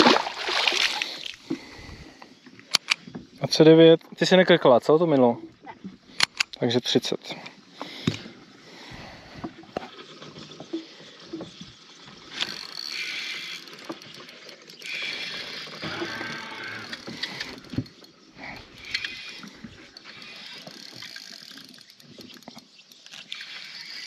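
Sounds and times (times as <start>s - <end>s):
rod and reel handling clicks: 2.5s - 3.1s, 6.1s - 6.6s, 12.3s - 24.0s
fishing reel whirring: 12.0s - 24.0s.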